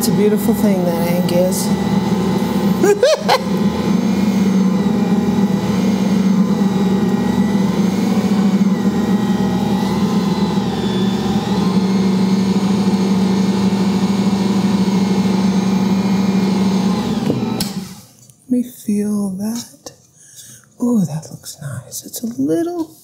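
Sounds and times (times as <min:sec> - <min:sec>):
stand mixer motor hum: 0:00.0 - 0:18.0.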